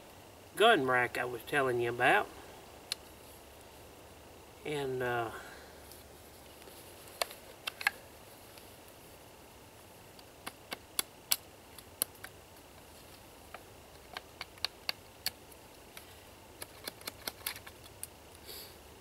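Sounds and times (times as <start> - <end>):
wooden sticks clicking together: 10.1 - 12.9, 13.5 - 18.2.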